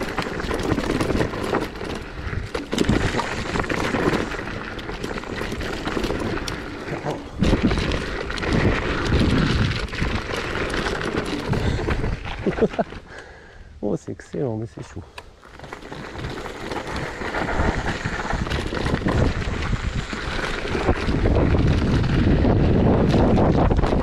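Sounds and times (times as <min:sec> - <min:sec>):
tyres crunching on gravel: 0:00.0 - 0:13.1, 0:15.2 - 0:24.0
scooter rattling: 0:00.0 - 0:13.4, 0:15.2 - 0:24.0
wind noise on microphone: 0:07.2 - 0:12.6, 0:16.0 - 0:24.0.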